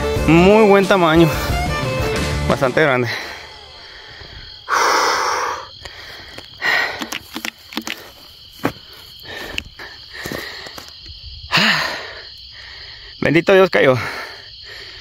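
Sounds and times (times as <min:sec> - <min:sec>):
insects trilling: 0:00.0 - 0:15.0
man breathing hard: 0:03.0 - 0:13.2, 0:13.9 - 0:15.0.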